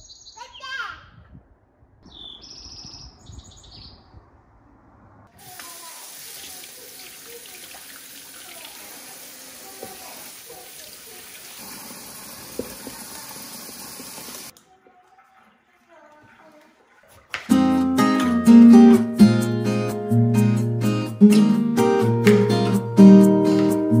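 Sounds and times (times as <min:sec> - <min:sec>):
bird chirps: 0:00.0 - 0:00.8, 0:02.0 - 0:04.3
water tap running into sink: 0:05.4 - 0:17.5.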